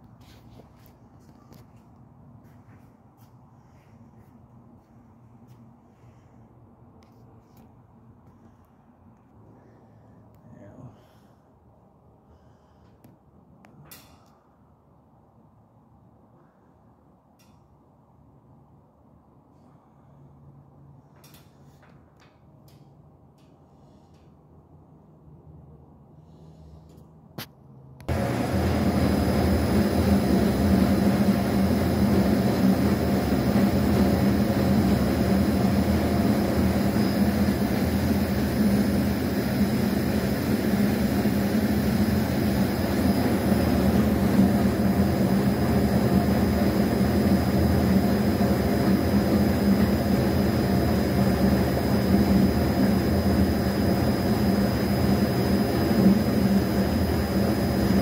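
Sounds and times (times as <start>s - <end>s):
screw feeder humming: 28.1s - 58.0s.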